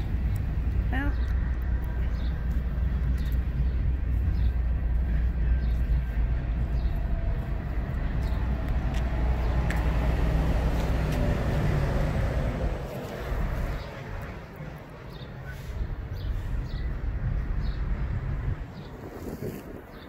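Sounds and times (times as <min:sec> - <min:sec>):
footsteps on gritty asphalt: 0:00.0 - 0:15.7
low outdoor rumble: 0:00.0 - 0:19.0.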